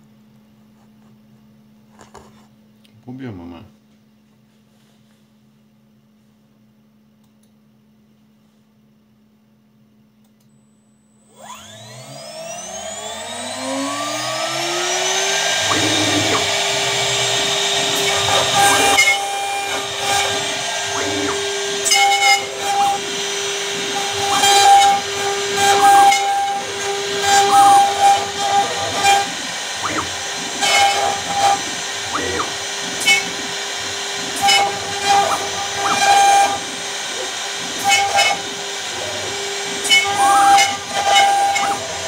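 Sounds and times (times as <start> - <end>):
router spindle whine: 11.1 - 42.0
scratchy cutting noise: 13.6 - 42.0.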